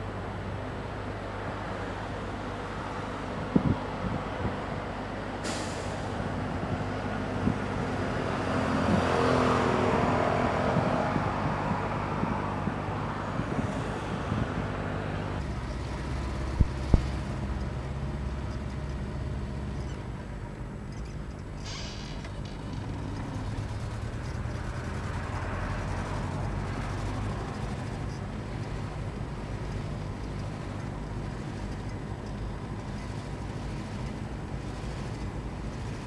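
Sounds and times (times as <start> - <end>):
tyre and road rumble: 5.8 - 36.0
car engine running: 15.4 - 36.0.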